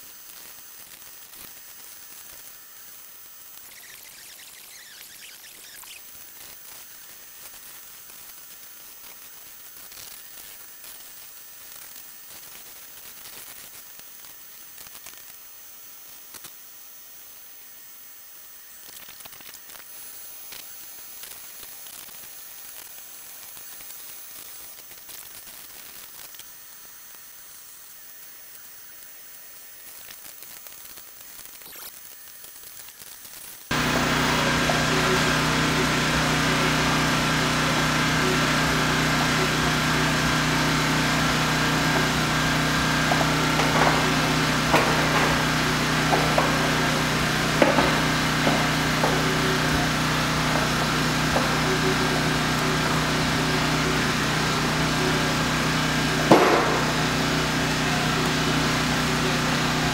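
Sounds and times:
motor running steadily: 0:33.6 - 0:59.9.

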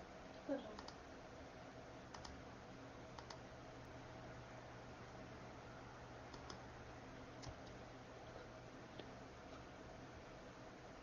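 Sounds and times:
faint steady hum: 0:00.0 - 0:11.0
soft clicks: 0:00.8 - 0:01.0, 0:02.1 - 0:02.4, 0:03.1 - 0:03.4, 0:06.3 - 0:06.6, 0:07.4 - 0:07.8.

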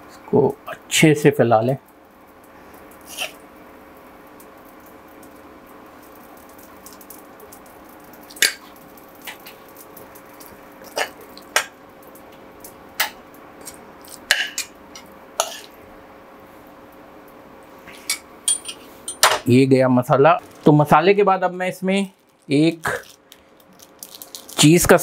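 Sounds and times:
sharp pops and crackles: 0:01.8 - 0:15.8, 0:22.0 - 0:25.0
omelette hissing in a frying pan: 0:02.5 - 0:11.7.

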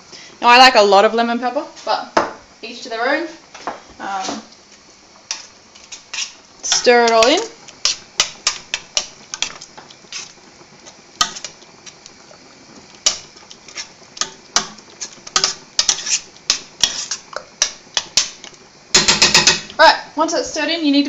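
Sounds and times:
metal spoon stirring in saucepan: 0:05.2 - 0:19.7.

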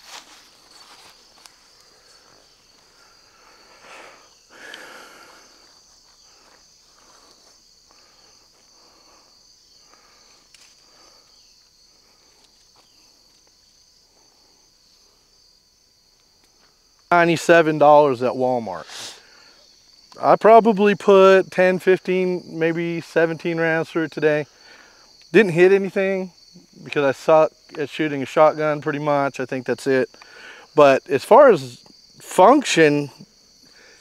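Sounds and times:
soft rustles: 0:00.0 - 0:03.0
field insects droning: 0:00.0 - 0:34.0.

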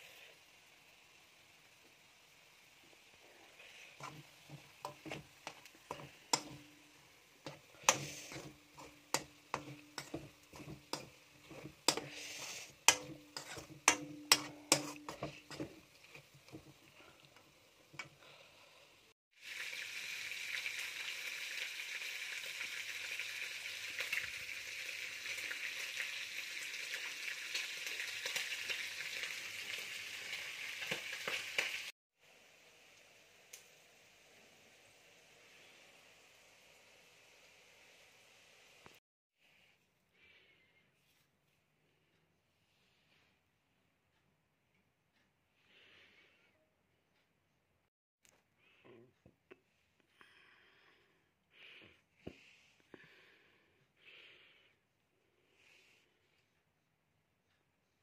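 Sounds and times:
meat sizzling in a pot: 0:00.0 - 0:39.0
metal spoon scraping a wok: 0:03.6 - 0:06.8, 0:07.4 - 0:16.8.

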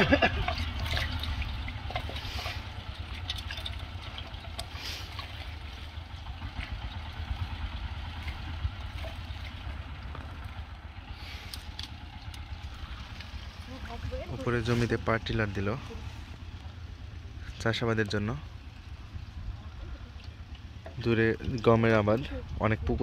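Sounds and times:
dripping water: 0:00.0 - 0:23.0
power tiller engine rumble: 0:00.0 - 0:23.0
roots rustling and crackling: 0:08.0 - 0:17.4.

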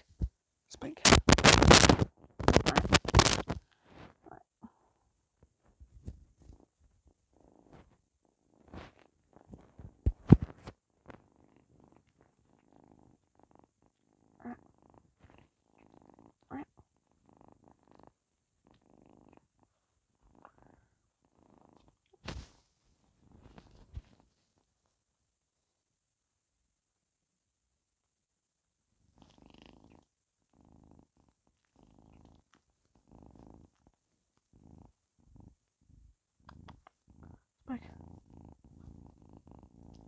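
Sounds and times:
kitten purring: 0:00.0 - 0:26.0, 0:28.8 - 0:40.0.

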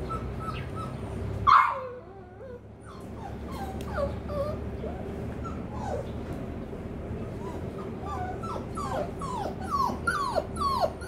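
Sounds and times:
dog whimpering: 0:00.0 - 0:01.0, 0:01.8 - 0:06.2, 0:07.4 - 0:11.0
dog yipping sharply: 0:01.5 - 0:02.0.

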